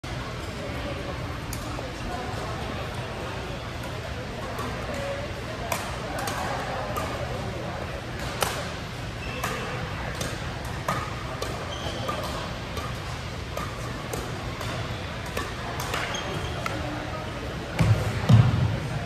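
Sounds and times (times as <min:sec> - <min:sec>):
rackets hitting shuttlecock: 0:05.7 - 0:07.4, 0:08.2 - 0:08.8, 0:09.4 - 0:16.8
shoe squeaks: 0:11.7 - 0:12.2, 0:16.0 - 0:16.6.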